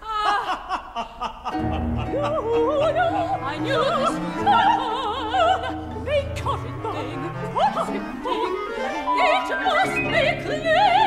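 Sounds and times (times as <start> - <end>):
operatic female singing: 2.0 - 11.0.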